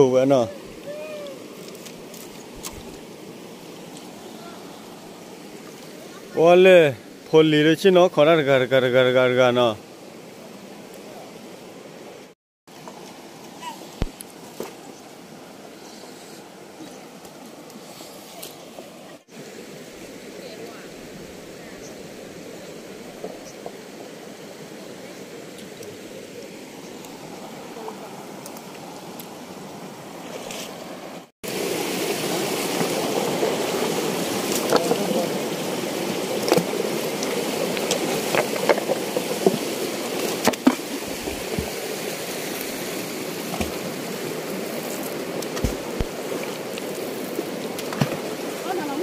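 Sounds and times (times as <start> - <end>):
stream water rushing: 0.0 - 49.0
water splashes: 12.2 - 49.0.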